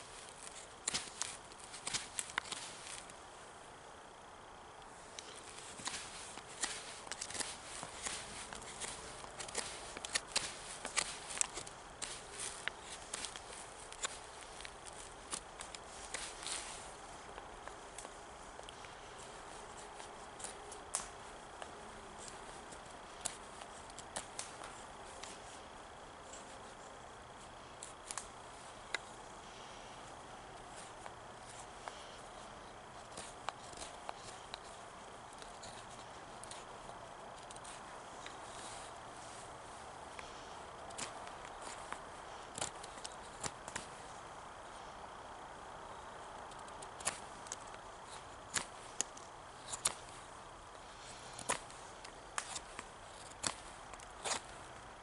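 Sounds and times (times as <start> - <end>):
knife carving wood: 0.0 - 3.1, 5.0 - 39.5, 40.1 - 44.1, 45.9 - 55.0
faint steady hiss: 0.0 - 55.0
knife whittling wood: 5.2 - 16.9.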